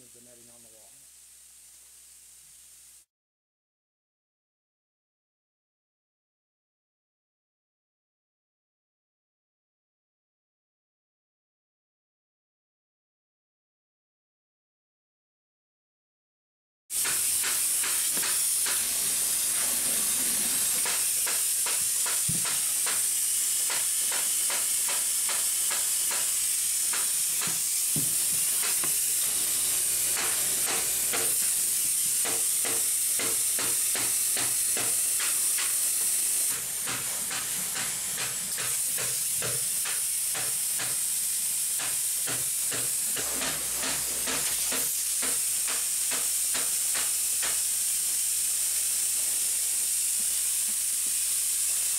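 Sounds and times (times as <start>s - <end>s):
spray-foam gun hissing: 0.0s - 3.1s, 16.9s - 51.9s.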